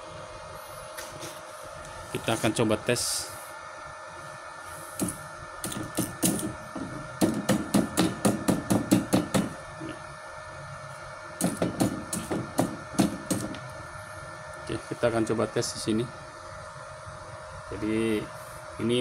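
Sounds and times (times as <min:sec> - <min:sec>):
faint high hum: 0:00.0 - 0:19.0
rapid sharp knocks: 0:05.7 - 0:09.6, 0:11.4 - 0:13.6.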